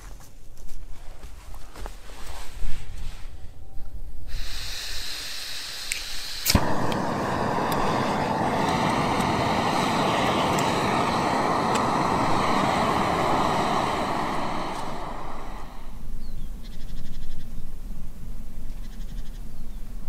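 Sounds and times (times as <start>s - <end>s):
gas stove burning hiss: 4.1s - 16.4s
stove igniter click: 5.8s - 13.9s.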